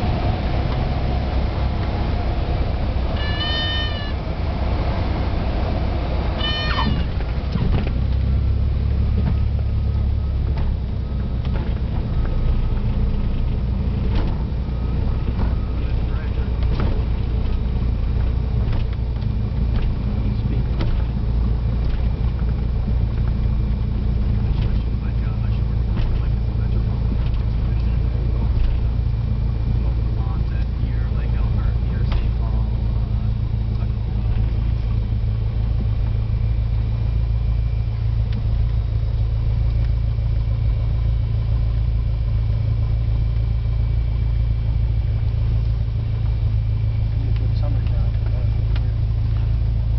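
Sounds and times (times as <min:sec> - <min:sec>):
propeller plane engine drone: 0:00.0 - 0:49.9.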